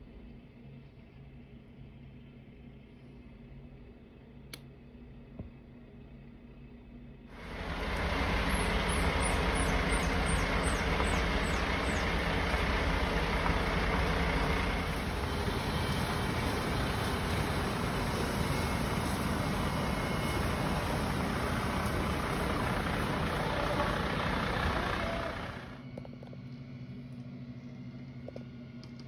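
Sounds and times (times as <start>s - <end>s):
diesel engines rumbling: 7.3s - 25.8s.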